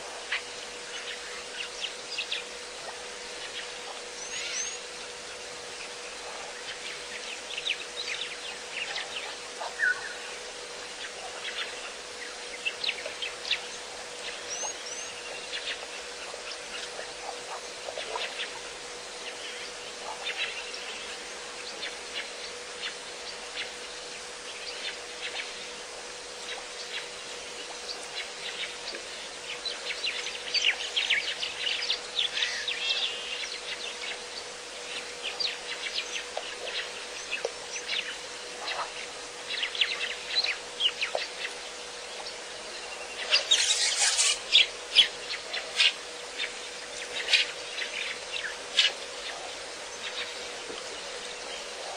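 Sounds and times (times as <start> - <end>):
faint steady hum: 0.0 - 51.9
small birds chirping: 0.3 - 51.9.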